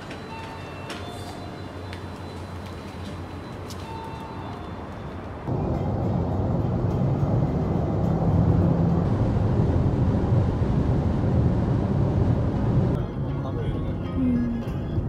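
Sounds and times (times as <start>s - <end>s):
car interior road rumble: 5.4s - 13.0s.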